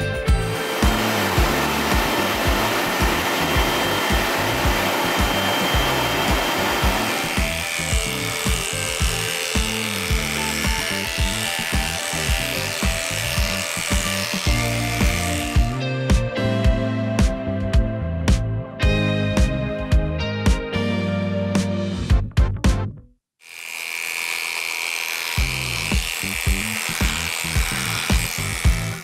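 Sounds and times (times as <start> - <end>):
electric clippers buzzing: 0.0 - 17.4, 23.4 - 29.0
background music: 0.0 - 23.0
blow dryer rushing air: 0.3 - 15.8, 23.5 - 29.0.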